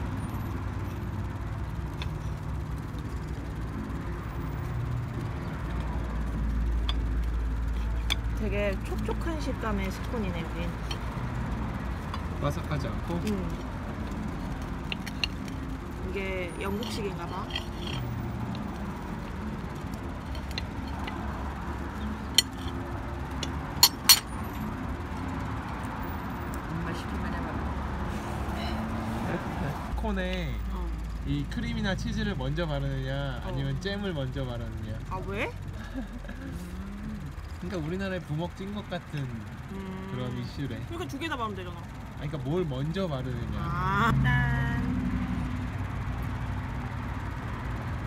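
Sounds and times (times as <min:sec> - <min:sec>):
vehicle engine rumbling: 0:00.0 - 0:48.0
knives clicking against plates: 0:22.0 - 0:24.6.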